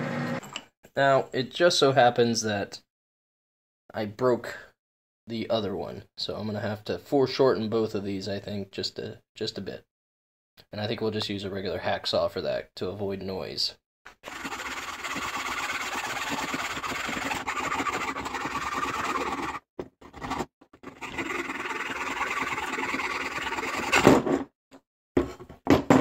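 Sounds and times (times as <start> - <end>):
hacksaw cutting rod: 14.2 - 19.6, 20.3 - 24.1.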